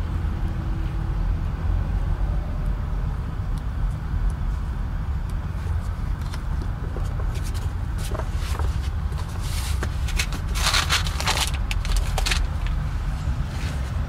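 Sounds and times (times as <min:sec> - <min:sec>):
steady low rumble: 0:00.0 - 0:14.0
paper rustling: 0:05.6 - 0:12.8.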